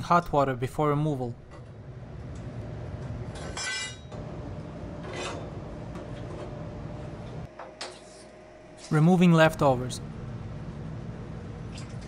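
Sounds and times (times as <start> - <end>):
steady low rumble: 9.5 - 11.8.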